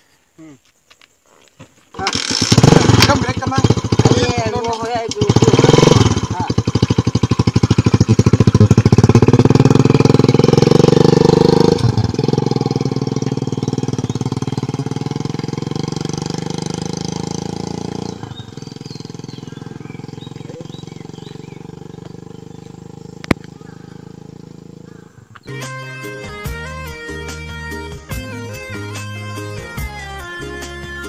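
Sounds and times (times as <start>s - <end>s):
motorcycle pulling away: 2.0s - 25.6s.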